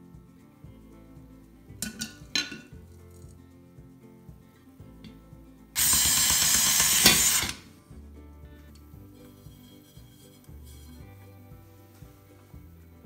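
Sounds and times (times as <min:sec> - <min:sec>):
soft background music: 0:00.0 - 0:13.0
cordless drill running: 0:05.8 - 0:07.6.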